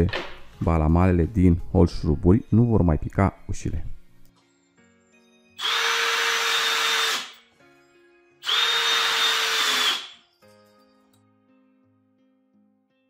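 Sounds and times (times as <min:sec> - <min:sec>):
drill driver motor whine: 0:05.6 - 0:07.4, 0:08.4 - 0:10.2.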